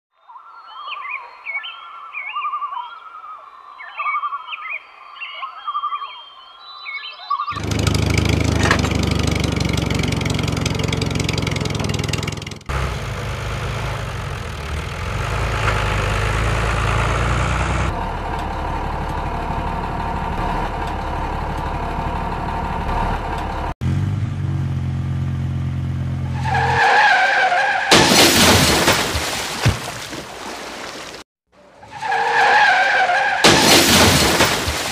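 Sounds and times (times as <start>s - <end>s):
vehicle engine running: 7.6s - 26.3s.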